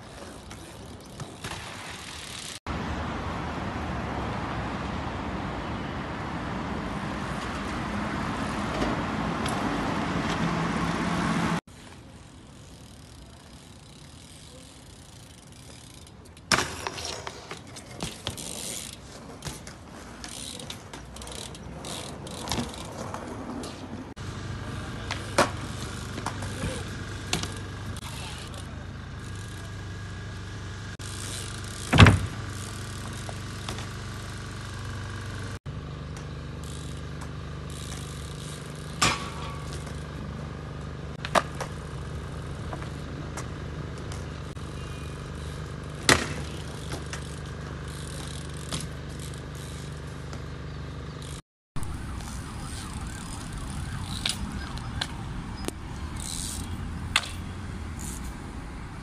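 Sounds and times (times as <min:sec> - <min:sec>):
street traffic: 0:00.0 - 0:59.0
bike landing on concrete bangs: 0:00.1 - 0:02.6, 0:16.4 - 0:23.9, 0:25.0 - 0:28.6, 0:31.0 - 0:34.1, 0:36.6 - 0:40.2, 0:41.2 - 0:44.3, 0:45.8 - 0:49.3, 0:54.0 - 0:58.3.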